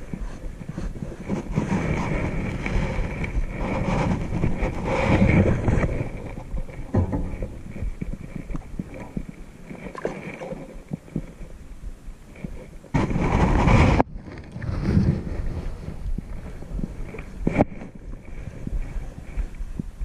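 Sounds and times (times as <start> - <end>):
wind buffeting microphone: 0.0 - 20.0
small knocks: 6.5 - 9.3.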